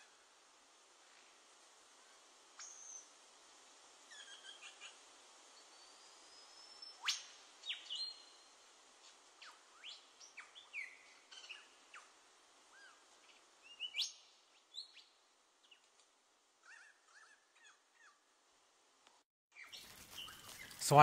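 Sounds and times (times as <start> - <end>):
wild birds chirping and whistling: 2.0 - 3.2, 4.0 - 15.9, 16.6 - 18.3, 19.6 - 20.8.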